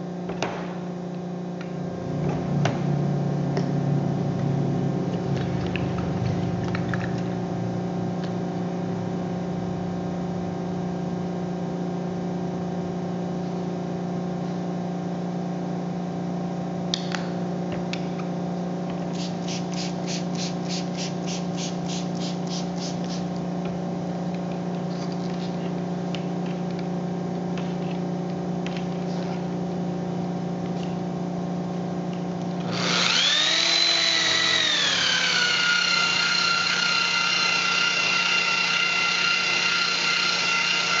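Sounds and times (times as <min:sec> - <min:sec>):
steady hum: 0:00.0 - 0:33.3
spray bottle squirts: 0:19.1 - 0:23.3
electric polisher motor whine: 0:32.6 - 0:41.0.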